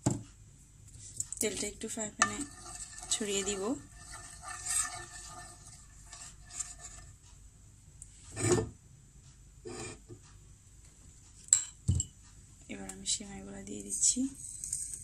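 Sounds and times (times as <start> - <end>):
plastic spoon scraping frying pan: 1.4 - 7.2, 8.3 - 8.7.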